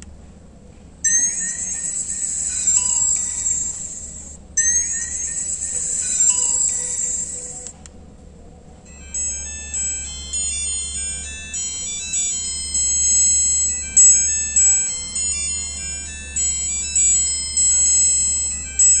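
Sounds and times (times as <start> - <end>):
high-pitched chiming ringtone melody: 1.1 - 7.7, 8.9 - 19.0.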